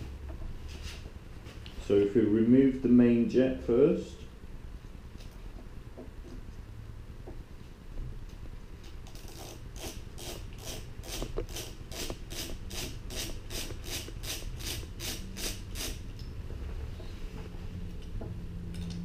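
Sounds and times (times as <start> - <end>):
screwdriver rasping strokes: 9.2 - 16.0.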